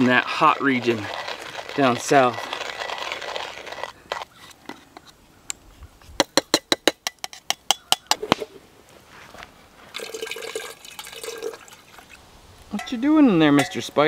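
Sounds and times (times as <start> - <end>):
water running into metal pot: 10.0 - 12.2
metallic clinks of coffee pot parts: 12.7 - 13.0, 13.6 - 13.9.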